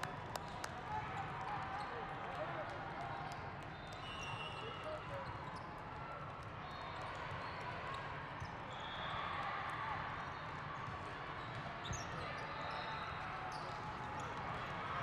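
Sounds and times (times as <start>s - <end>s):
echoing crowd chatter: 0.0s - 15.0s
sneaker squeaks: 11.4s - 14.3s.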